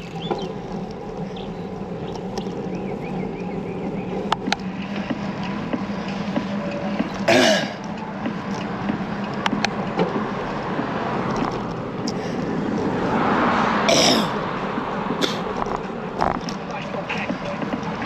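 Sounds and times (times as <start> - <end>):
low hum: 0.0 - 18.0
wind and road noise: 0.0 - 18.0
person coughing: 7.3 - 7.8, 13.9 - 14.4.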